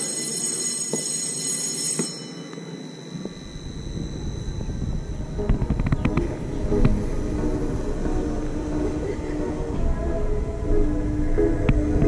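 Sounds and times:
high steady warning tone: 0.0s - 12.0s
ride drive low rumble: 3.3s - 12.0s.

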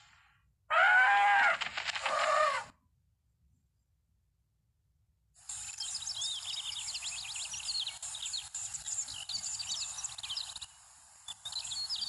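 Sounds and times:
small birds chirping: 5.4s - 12.0s
steady high hiss: 5.4s - 12.0s.

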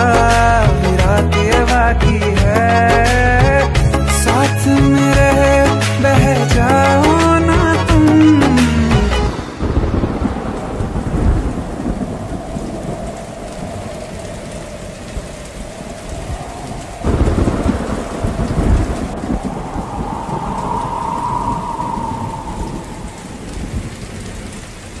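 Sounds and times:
rain falling steadily: 0.0s - 25.0s
heavy thunderclap: 9.3s - 25.0s
rolling thunder: 9.3s - 25.0s.

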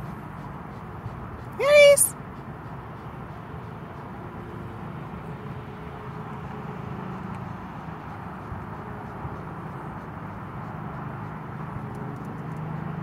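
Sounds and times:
distant road traffic rumble: 0.0s - 13.0s
faint vehicle engine hum: 0.0s - 13.0s.

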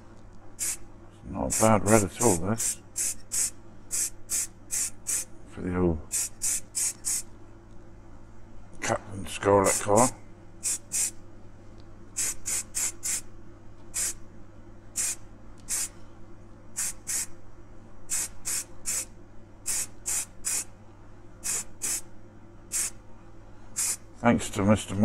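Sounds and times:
steady low hum: 0.0s - 25.0s
spray paint hissing: 0.6s - 0.8s, 1.5s - 5.3s, 6.1s - 7.2s, 9.6s - 11.1s, 12.2s - 13.2s, 14.0s - 14.2s, 15.0s - 15.9s, 16.8s - 17.3s, 18.1s - 19.1s, 19.7s - 20.7s, 21.4s - 22.0s, 22.7s - 23.0s, 23.8s - 24.0s.

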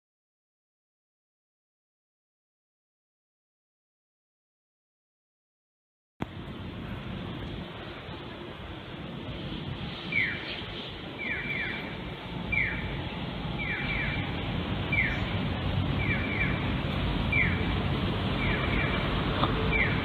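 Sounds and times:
jet passing overhead: 6.2s - 20.0s.

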